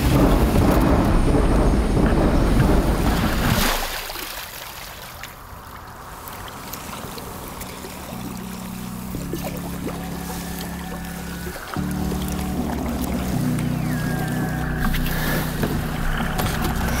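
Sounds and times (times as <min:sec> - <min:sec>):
loud low rumble: 0:00.0 - 0:03.6, 0:08.0 - 0:17.0
kayak paddle in water: 0:00.0 - 0:17.0
music: 0:06.7 - 0:17.0.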